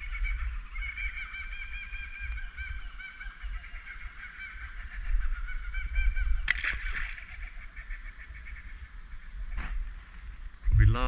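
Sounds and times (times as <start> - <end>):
fish splashing into water: 6.5 - 7.3.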